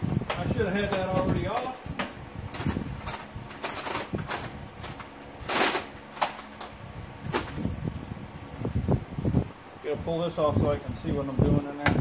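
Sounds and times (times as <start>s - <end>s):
metal tools clinking: 2.5s - 6.8s.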